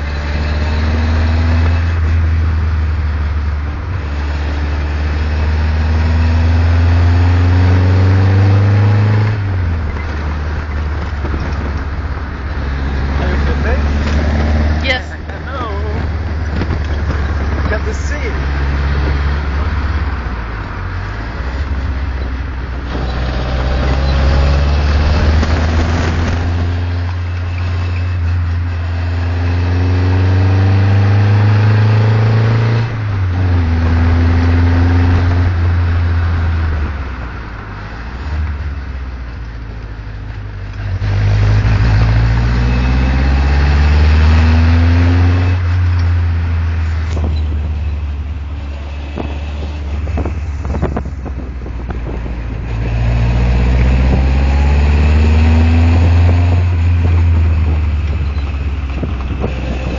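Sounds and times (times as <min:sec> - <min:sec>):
car engine revving: 0:00.0 - 0:59.9
gear change: 0:08.4 - 0:36.1.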